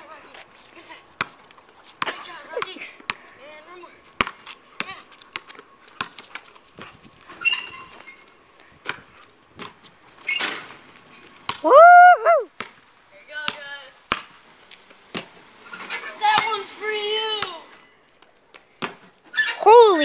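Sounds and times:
person shouting woo: 0:11.6 - 0:12.5
knocks and taps on a driveway: 0:12.6 - 0:19.2.

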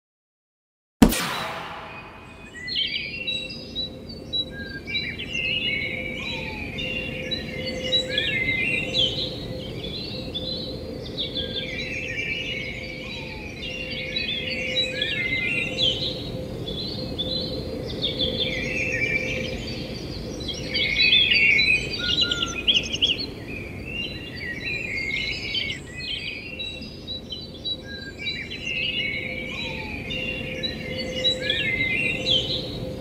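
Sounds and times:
steady hum: 0:01.0 - 0:02.8.

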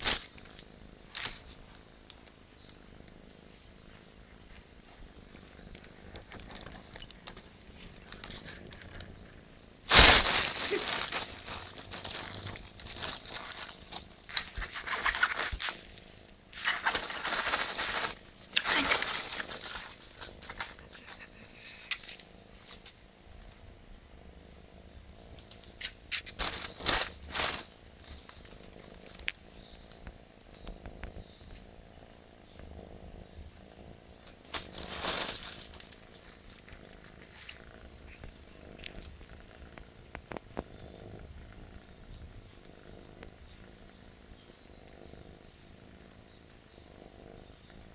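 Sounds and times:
cat purring: 0:00.0 - 0:47.9
plastic bag crinkling: 0:05.8 - 0:09.0, 0:09.9 - 0:16.0, 0:16.6 - 0:22.2, 0:26.1 - 0:29.3, 0:34.4 - 0:37.7.

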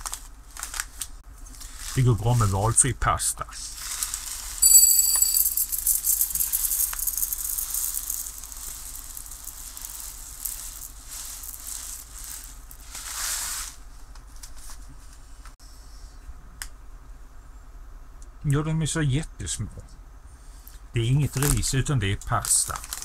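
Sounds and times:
dry pasta rattling into metal cup: 0:04.0 - 0:13.6, 0:22.4 - 0:23.0.

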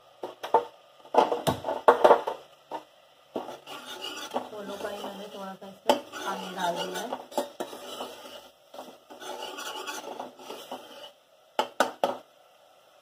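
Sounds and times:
metal spoon scraping in pot: 0:03.4 - 0:11.2.

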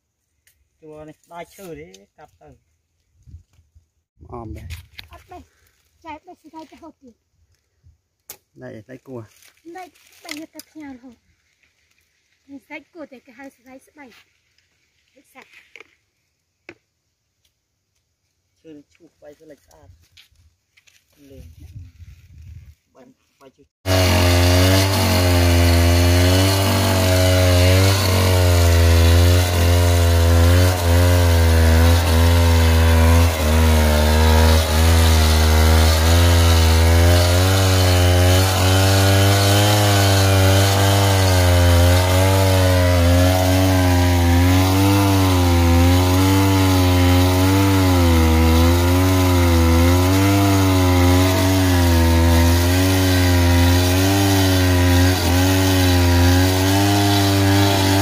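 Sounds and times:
chainsaw cutting wood: 0:23.8 - 0:58.0.

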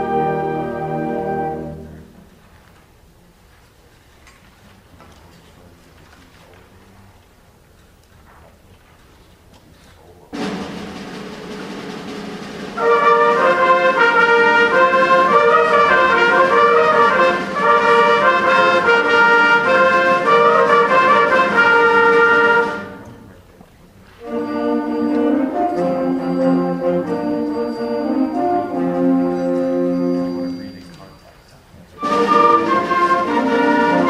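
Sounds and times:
concert band playing: 0:00.0 - 0:02.3, 0:10.3 - 0:23.2, 0:24.2 - 0:31.3, 0:32.0 - 0:34.0.

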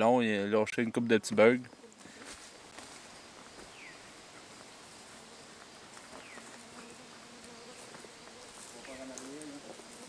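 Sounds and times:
light ticks and rustles: 0:04.3 - 0:10.0.

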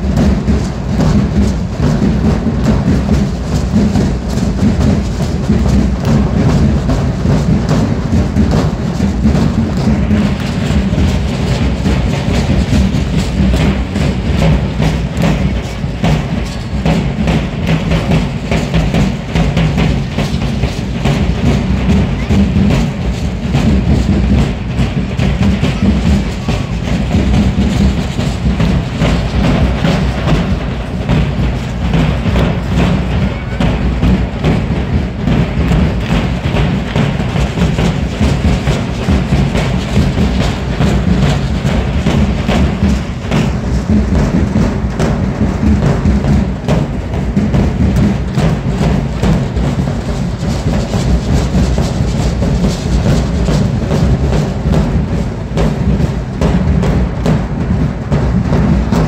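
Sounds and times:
bass drums beating: 0:00.0 - 0:59.0.

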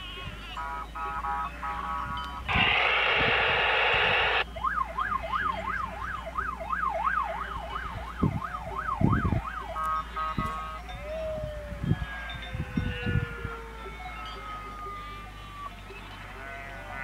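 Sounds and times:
loud rushing noise: 0:02.5 - 0:04.4
electronic siren yelping: 0:02.5 - 0:10.6, 0:11.3 - 0:15.7.

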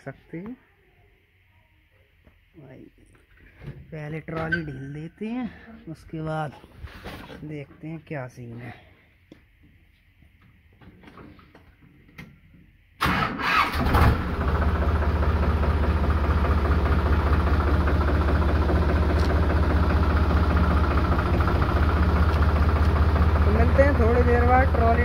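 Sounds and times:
tractor engine starting and idling: 0:13.0 - 0:25.0.

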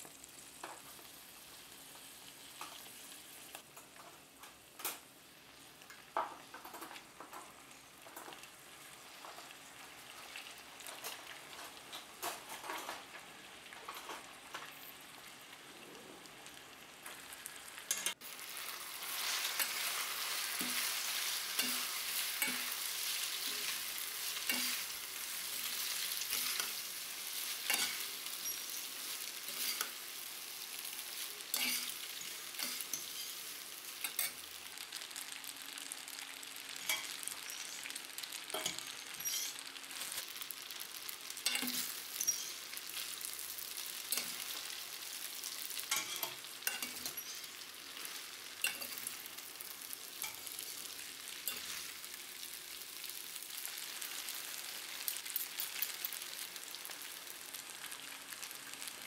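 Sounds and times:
spaghetti sizzling in a pan: 0:00.0 - 0:59.0
utensils clicking and scraping a pan: 0:10.2 - 0:14.9, 0:17.8 - 0:34.6, 0:36.7 - 0:52.1, 0:55.0 - 0:56.3.

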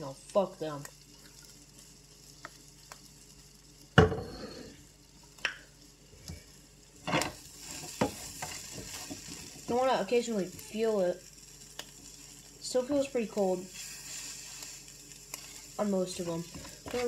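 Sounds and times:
food sizzling in a frying pan: 0:00.0 - 0:17.0.

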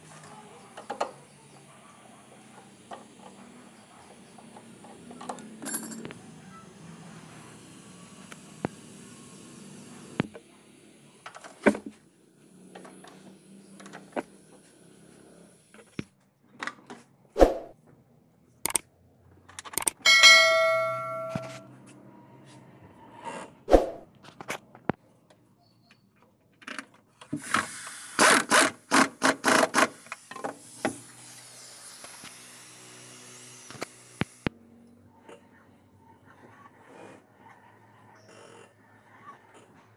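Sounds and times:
sharp clicks: 0:18.6 - 0:18.8, 0:19.6 - 0:20.0.

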